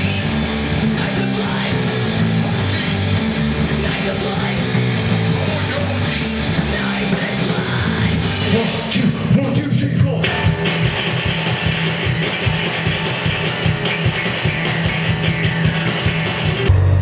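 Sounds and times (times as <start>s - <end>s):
drums: 0.0s - 17.0s
electric guitars: 0.0s - 17.0s.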